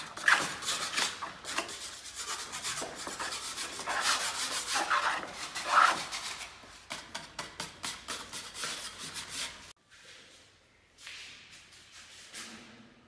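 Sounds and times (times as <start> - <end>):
hand sanding wood: 0.0 - 9.7.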